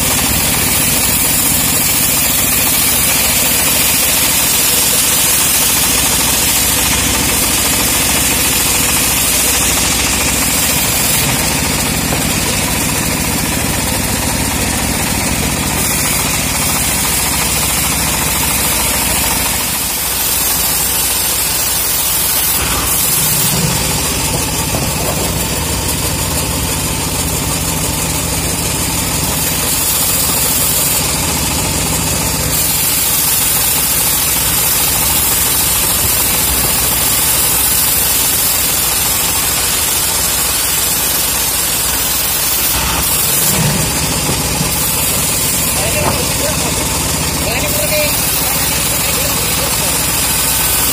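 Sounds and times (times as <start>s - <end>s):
bandsaw ripping through wood: 15.6s - 25.5s.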